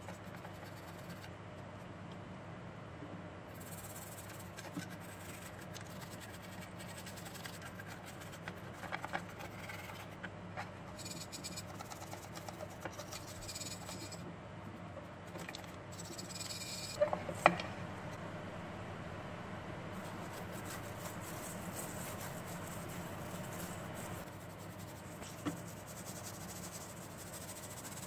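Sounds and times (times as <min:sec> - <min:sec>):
toothbrush scrubbing circuit board: 0:00.0 - 0:01.3, 0:03.5 - 0:10.2, 0:10.9 - 0:14.2, 0:15.4 - 0:17.0, 0:19.9 - 0:28.0
steady low hum: 0:00.0 - 0:28.0.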